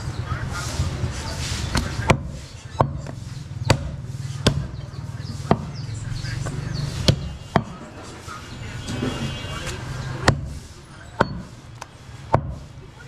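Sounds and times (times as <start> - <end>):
cleaver chopping on wooden block: 1.7 - 4.8, 5.4 - 5.8, 6.4 - 7.8, 10.2 - 10.6, 11.2 - 12.7.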